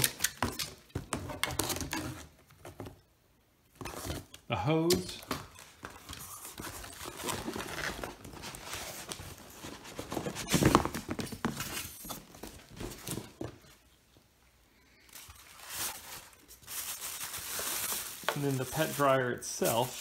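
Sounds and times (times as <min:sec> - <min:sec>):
cardboard and packing rustling: 0:03.7 - 0:13.9, 0:15.1 - 0:20.0.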